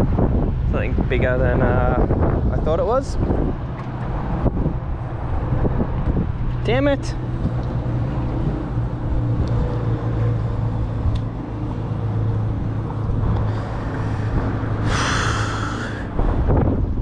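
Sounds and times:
wind buffeting microphone: 0.0s - 17.0s
hissing rush: 12.9s - 16.5s.

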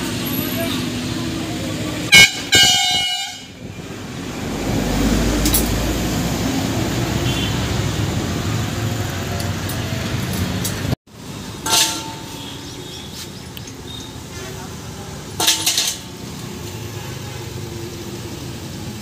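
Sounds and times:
highway traffic: 0.0s - 19.0s.

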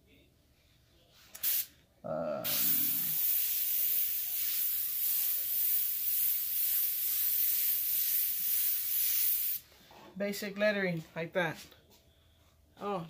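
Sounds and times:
airbrush hissing: 2.5s - 9.6s.

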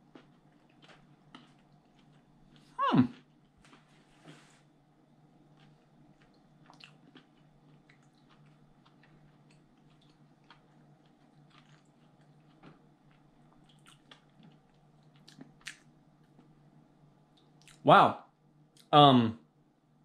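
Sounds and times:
chewing crunchy chip: 0.0s - 3.9s, 5.4s - 16.6s
low steady hum: 0.0s - 20.0s.

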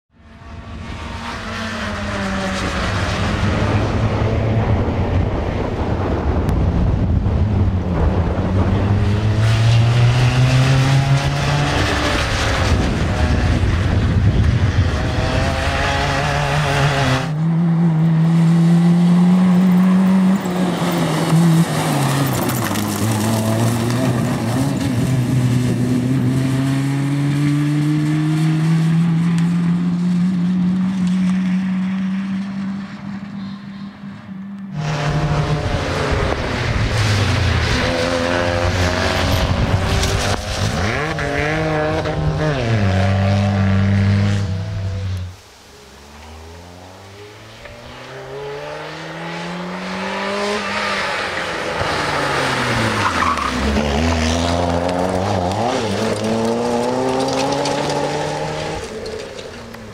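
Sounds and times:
rally car engine revving hard: 7.8s - 32.4s, 34.7s - 45.3s, 47.1s - 59.2s.

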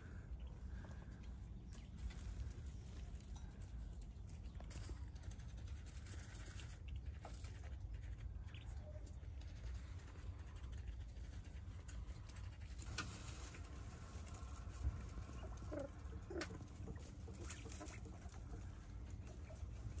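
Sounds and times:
quail scratching in sand: 0.0s - 20.0s
faint quail calls: 15.2s - 18.9s.

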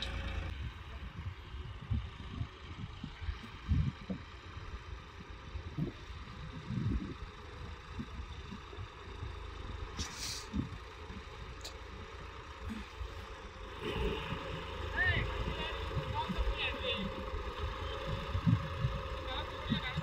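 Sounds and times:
distant tractor diesel engine: 0.0s - 20.0s
low rumbles: 0.0s - 20.0s
short hiss: 10.0s - 10.5s.

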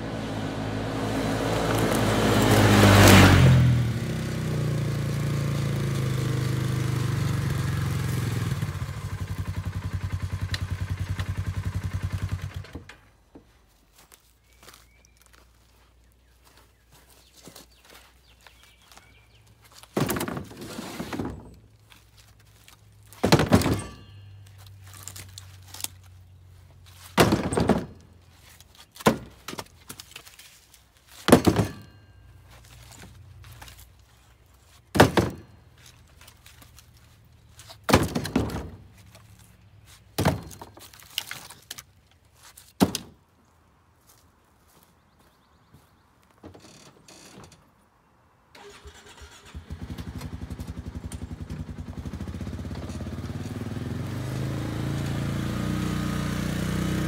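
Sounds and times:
wood chunks thunking into cargo bed: 19.6s - 26.0s, 26.9s - 34.0s, 34.8s - 39.2s, 40.1s - 43.3s.

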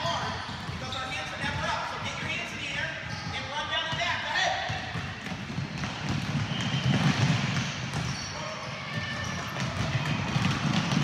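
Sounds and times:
basketballs bouncing on wooden floor: 0.0s - 11.0s
players running: 4.9s - 11.0s.

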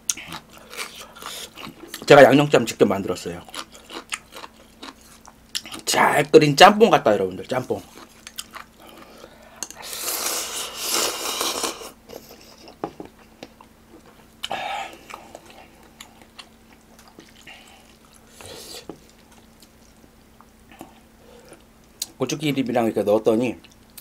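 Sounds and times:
wet chewing: 3.4s - 5.9s, 7.8s - 20.0s
noodles being slurped: 9.7s - 12.3s.

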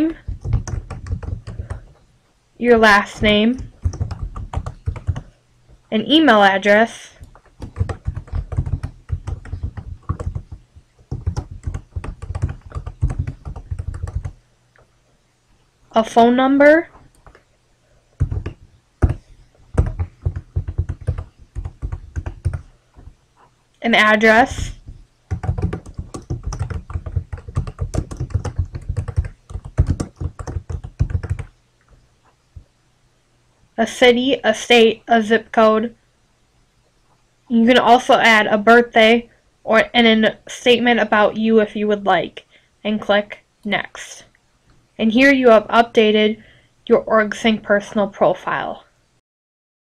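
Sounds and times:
fast typing on keyboard: 0.1s - 2.0s, 2.8s - 5.3s, 7.2s - 14.4s, 17.0s - 17.4s, 18.2s - 23.1s, 24.4s - 31.5s.

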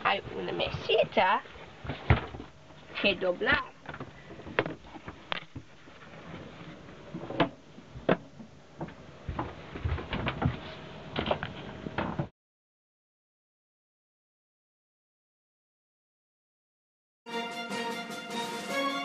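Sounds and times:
knocks and clicks in wooden cabin: 3.8s - 5.7s, 7.2s - 10.6s.

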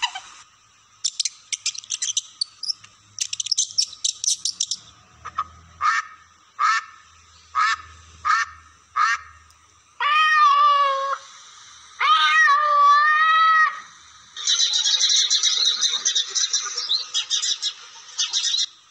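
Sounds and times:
duck quacking: 5.4s - 7.0s, 7.6s - 9.4s.

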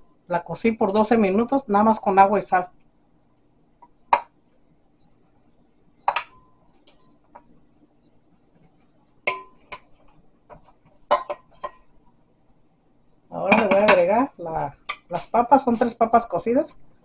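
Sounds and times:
glass bowls clinking: 6.0s - 7.0s, 9.2s - 12.0s.

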